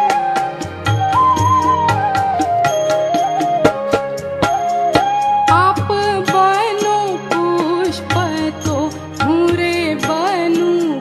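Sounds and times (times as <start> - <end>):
instrumental accompaniment: 0.0 - 11.0
percussion strokes: 0.0 - 11.0
woman singing: 5.5 - 11.0.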